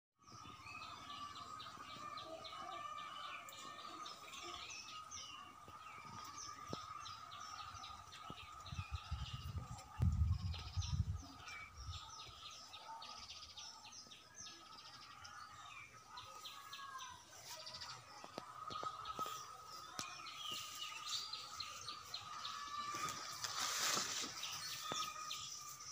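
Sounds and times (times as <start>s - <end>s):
small birds chirping: 0.2s - 25.9s.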